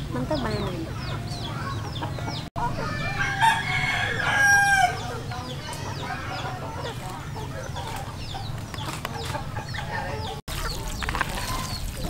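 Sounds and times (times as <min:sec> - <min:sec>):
chickens clucking: 0:00.0 - 0:12.0
rooster crowing: 0:02.8 - 0:05.1.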